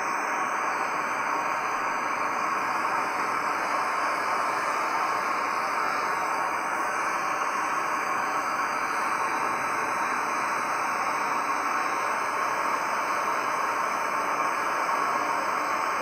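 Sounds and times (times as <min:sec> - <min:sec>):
gas stove burner hissing: 0:00.0 - 0:16.0
water boiling in a pot: 0:00.0 - 0:16.0.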